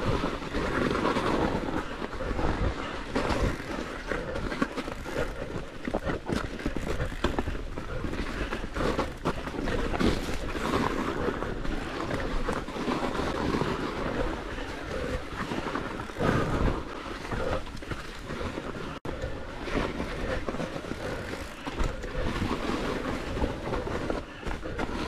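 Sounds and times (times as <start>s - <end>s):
tyres crunching through snow: 0.0s - 19.0s
bike rattling over bumps: 0.0s - 25.0s.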